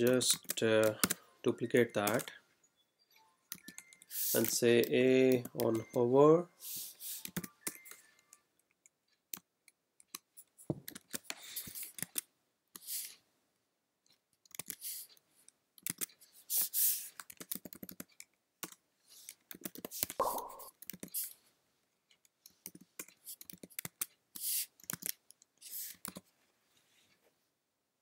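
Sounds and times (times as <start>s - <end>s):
computer keyboard typing: 0.2s - 1.2s, 3.5s - 6.0s, 7.0s - 8.4s, 14.5s - 14.9s, 15.8s - 16.1s, 17.1s - 18.8s, 19.4s - 21.3s, 22.6s - 24.2s.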